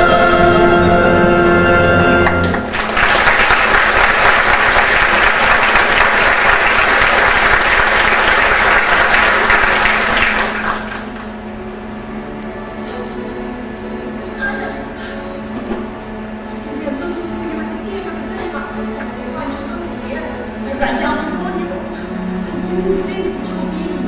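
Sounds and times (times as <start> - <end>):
singers and orchestra holding a note: 0.0 - 2.9
audience applause: 2.2 - 11.4.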